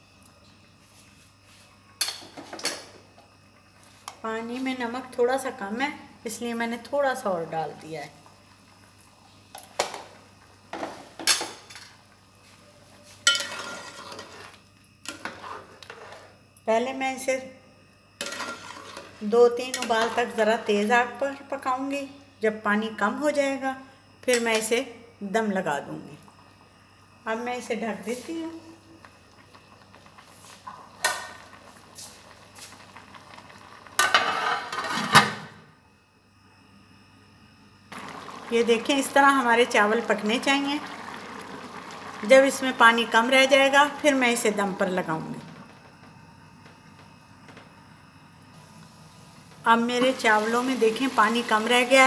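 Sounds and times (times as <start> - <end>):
spoon scraping pot: 13.2 - 16.4, 18.2 - 20.4
spoon clanking on pot: 13.3 - 14.2.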